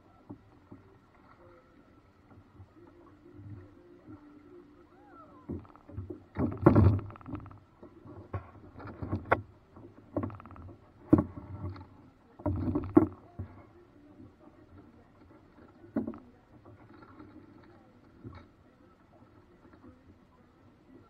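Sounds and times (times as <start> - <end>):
paddle splashing in water: 0.0 - 21.0
paddle knocking on boat: 5.4 - 13.6.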